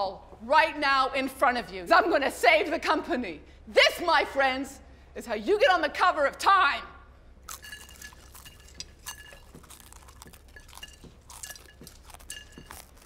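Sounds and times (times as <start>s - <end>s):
pretzels crunching and chewing: 7.4s - 13.0s
pretzels clinking on a plate: 7.5s - 13.0s.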